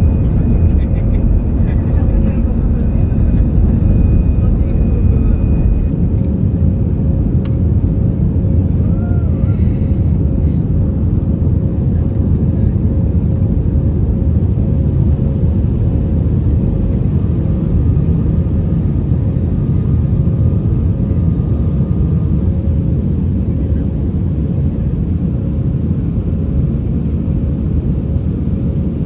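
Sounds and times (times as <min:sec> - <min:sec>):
faint steady hum: 0:00.0 - 0:05.9
airplane cabin engine rumble: 0:00.0 - 0:29.0.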